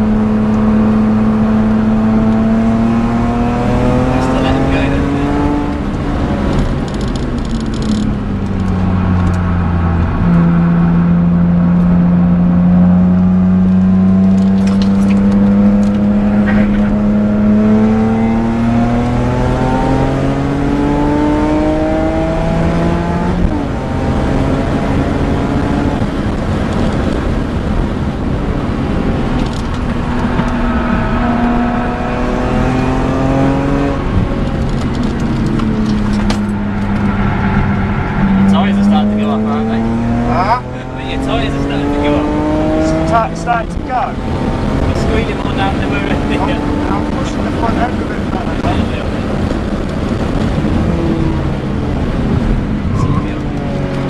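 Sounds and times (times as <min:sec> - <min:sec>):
car engine revving: 0:00.0 - 0:54.0.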